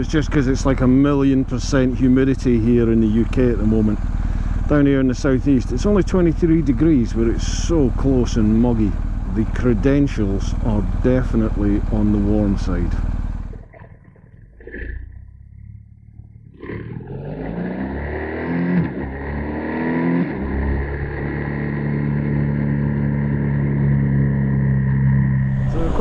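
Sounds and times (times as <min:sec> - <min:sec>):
motorcycle engine pulling away: 0:00.0 - 0:13.8, 0:14.7 - 0:26.0.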